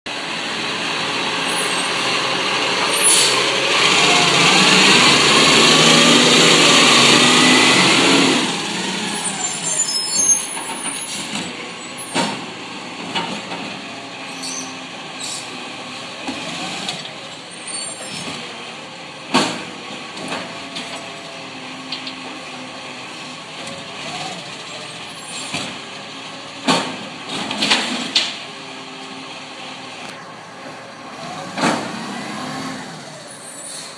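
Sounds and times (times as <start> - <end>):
garbage truck whine: 0.1 - 33.9
bins clanking and banging: 26.6 - 28.4.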